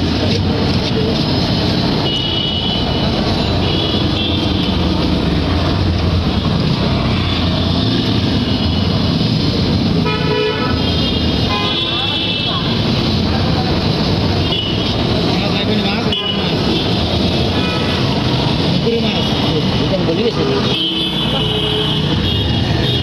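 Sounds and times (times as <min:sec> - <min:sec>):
road traffic noise: 0:00.0 - 0:23.0
vehicle horns tooting: 0:10.0 - 0:12.8, 0:20.5 - 0:23.0.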